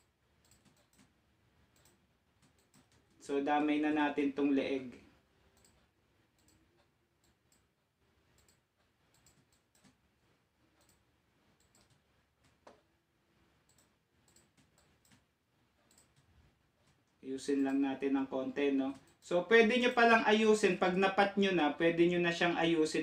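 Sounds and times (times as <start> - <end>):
computer mouse clicks: 0.0 - 3.8, 5.5 - 7.7, 8.3 - 10.0, 10.7 - 12.9, 13.6 - 17.8.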